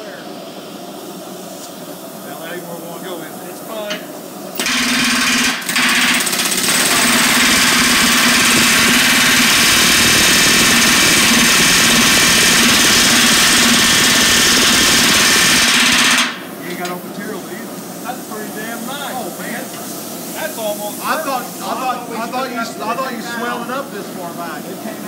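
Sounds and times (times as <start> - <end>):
pneumatic rivet gun hammering: 4.6 - 16.9.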